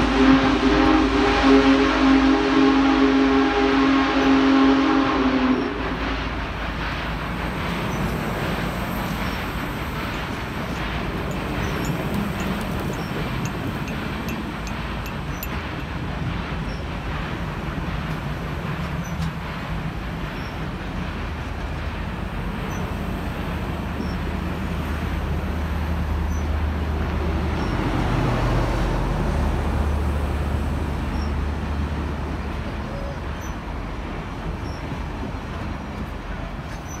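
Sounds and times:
train cars rolling past: 0.0 - 37.0.

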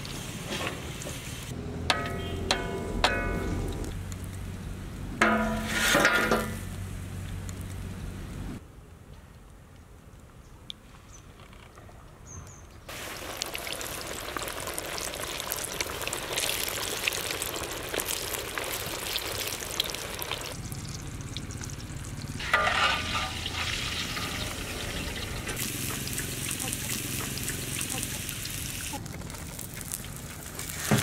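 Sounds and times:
metal skimmer scraping wok: 1.9 - 3.8, 5.2 - 6.8, 22.4 - 27.7
chicken crackling in hot oil: 12.9 - 31.0.

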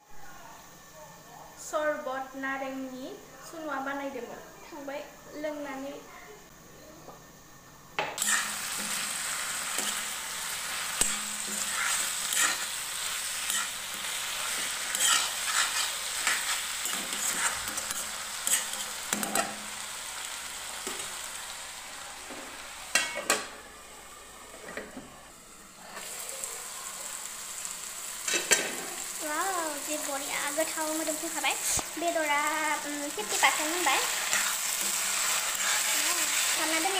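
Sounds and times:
metal spatula scraping pan: 8.2 - 9.1, 10.7 - 19.5, 34.0 - 36.5
chicken sizzling in oil: 8.2 - 24.1, 25.7 - 36.9.

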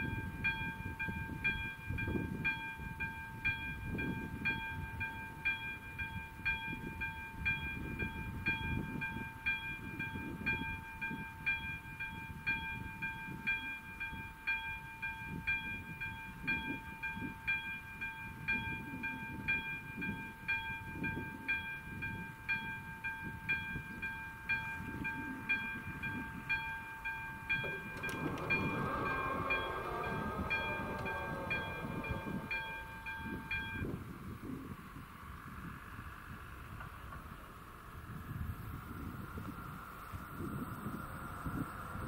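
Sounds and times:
level-crossing warning bell ringing: 0.0 - 34.4
barrier drives whining: 27.4 - 34.0.

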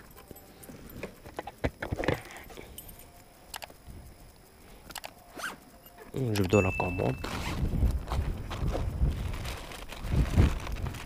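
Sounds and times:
keys jangling and clicking: 0.0 - 1.6, 2.2 - 7.3.

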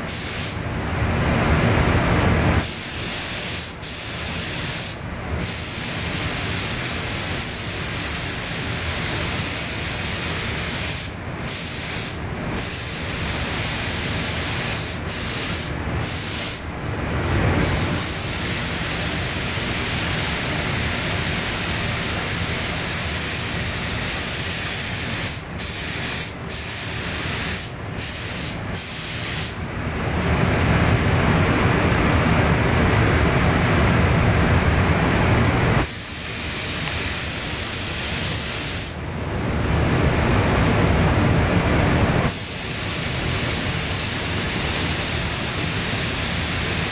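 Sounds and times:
spray gun hissing: 0.0 - 0.6, 2.6 - 29.6, 35.8 - 39.0, 42.3 - 46.9.

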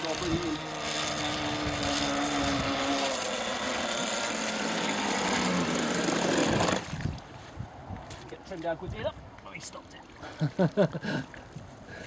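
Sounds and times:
model boat engine buzzing: 0.0 - 7.1.

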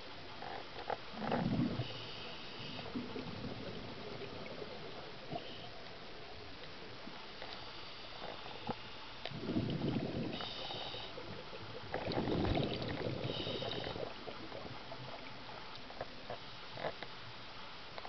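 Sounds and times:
exhaled bubbles underwater: 1.1 - 6.6, 9.3 - 15.7
regulator inhalation hiss: 10.3 - 11.3, 13.2 - 14.1.

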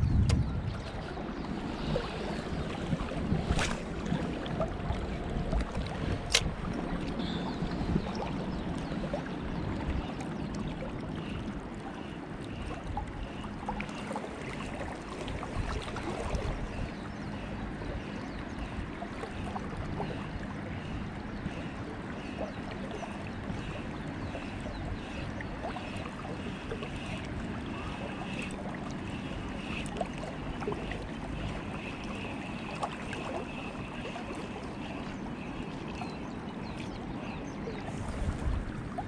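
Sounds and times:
wind on microphone: 0.0 - 10.8, 36.0 - 39.0.

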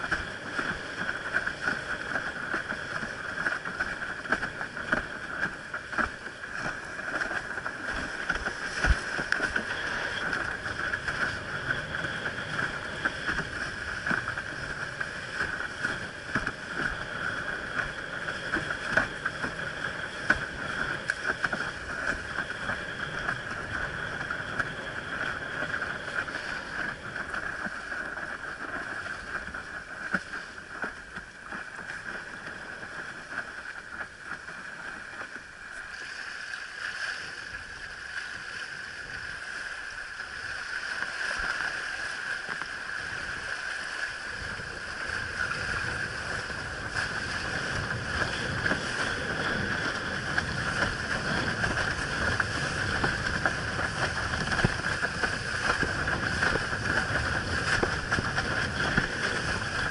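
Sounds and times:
water rushing along board hull: 0.0 - 59.9
wind on microphone: 0.0 - 59.9.

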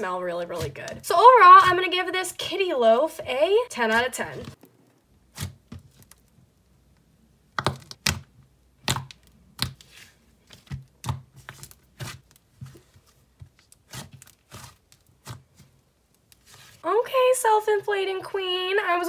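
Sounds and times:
slime clicking and popping: 7.5 - 9.8.

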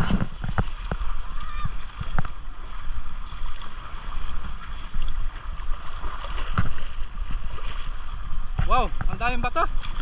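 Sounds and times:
wind rushing over microphone: 0.0 - 3.4
water washing in shallows: 0.0 - 10.0.

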